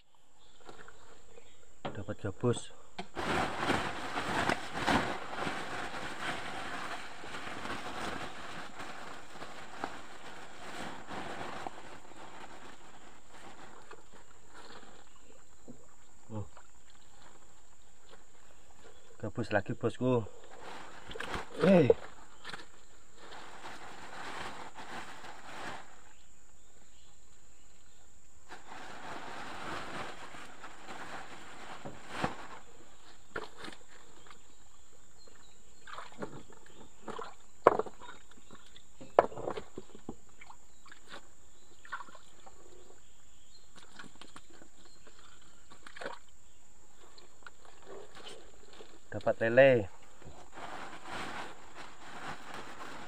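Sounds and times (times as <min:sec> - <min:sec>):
water sloshing and splashing: 0:03.2 - 0:19.2, 0:28.6 - 0:49.2.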